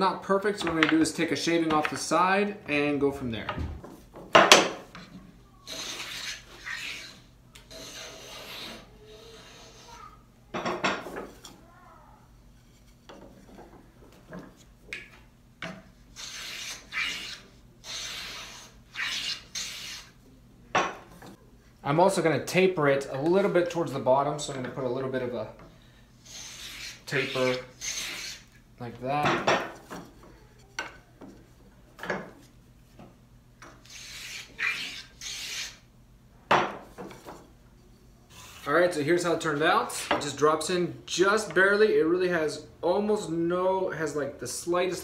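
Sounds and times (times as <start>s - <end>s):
hand plane cutting strokes: 5.7s - 9.9s, 16.1s - 20.2s, 26.2s - 28.5s, 33.8s - 35.8s
hand tool shaving wood: 26.3s - 28.4s.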